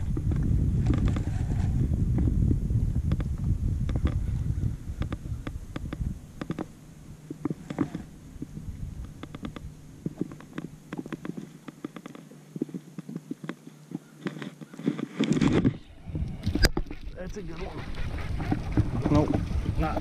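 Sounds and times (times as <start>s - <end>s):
steady low hum: 0.0s - 14.6s.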